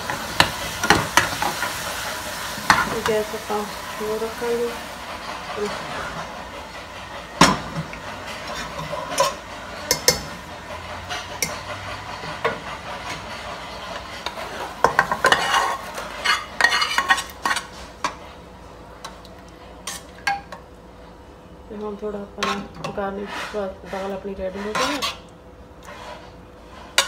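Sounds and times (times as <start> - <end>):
steady sizzle: 0.0 - 27.0
metal ladle scraping pot: 7.5 - 18.2, 19.8 - 20.6, 22.3 - 27.0.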